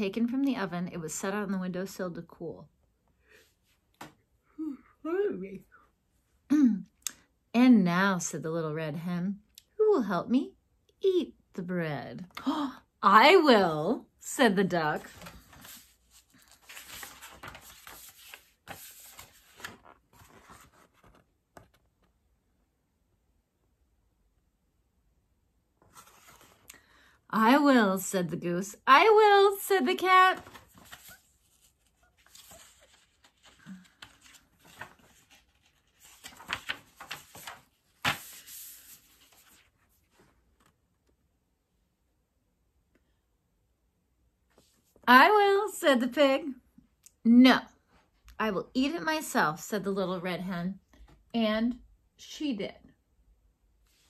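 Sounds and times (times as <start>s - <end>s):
paper pages rustling: 14.9s - 22.2s, 25.8s - 26.7s, 29.8s - 40.8s.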